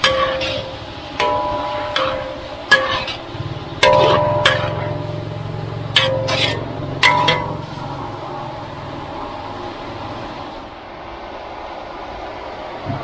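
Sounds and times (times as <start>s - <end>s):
metal ladle striking wok: 0.0s - 8.5s
low steady hum: 0.0s - 13.0s.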